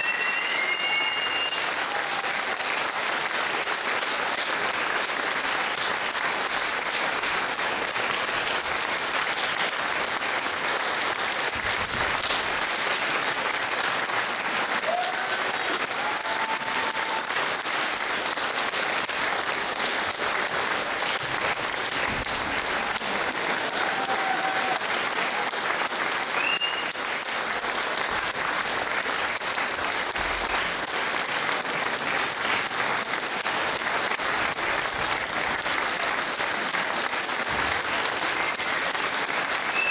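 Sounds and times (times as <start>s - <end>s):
high calls from audience: 0.0s - 2.7s, 14.7s - 17.7s, 22.6s - 27.1s, 37.8s - 39.9s
audience applauding: 0.0s - 39.9s.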